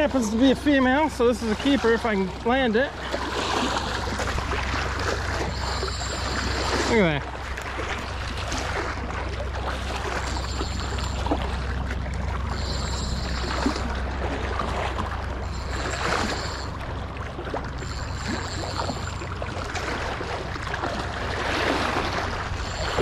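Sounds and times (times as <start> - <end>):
steady low rumble: 2.2 - 23.0
fish thrashing in water: 3.0 - 23.0
high whir: 3.6 - 8.8, 9.6 - 19.9, 21.9 - 23.0.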